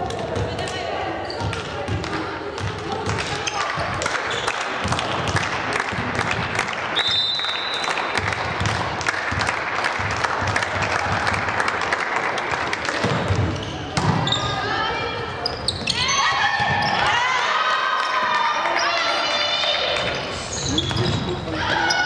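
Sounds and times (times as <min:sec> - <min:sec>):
spectators clapping and cheering: 0:03.1 - 0:13.3, 0:17.0 - 0:20.2
referee's whistle: 0:07.0 - 0:07.9.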